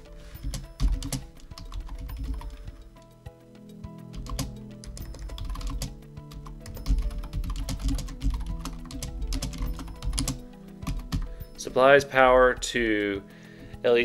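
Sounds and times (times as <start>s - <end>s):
keyboard typing: 0.0s - 3.1s, 4.0s - 11.6s
background music: 0.0s - 14.0s.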